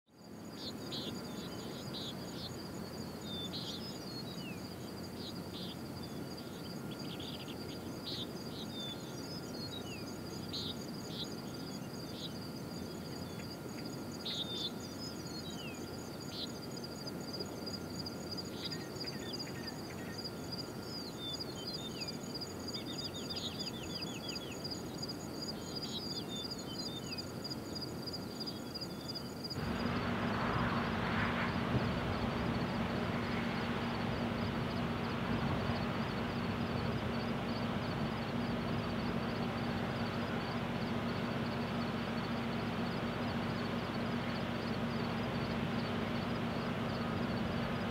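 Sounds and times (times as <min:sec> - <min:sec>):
insects trilling: 0:00.1 - 0:47.9
birds chirping: 0:00.4 - 0:30.0
low background rumble: 0:00.4 - 0:47.9.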